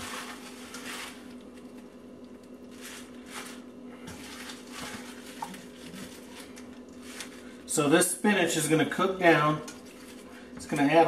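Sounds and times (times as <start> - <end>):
leaves rustling into a pan: 0.0 - 7.9.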